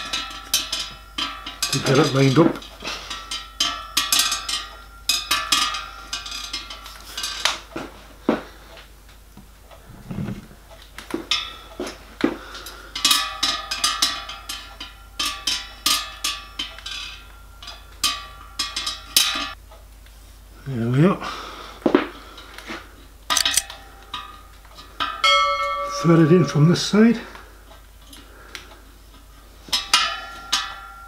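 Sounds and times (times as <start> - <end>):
metal rod tapping copper boiler: 0.0 - 7.7, 11.1 - 19.6, 23.3 - 27.4, 29.7 - 31.0.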